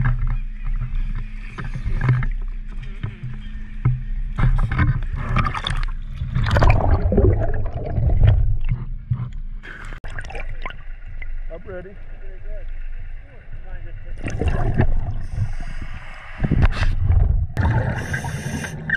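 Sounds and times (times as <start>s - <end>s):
sea water sloshing and gurgling: 0.0s - 18.9s
low rumble: 3.9s - 18.1s.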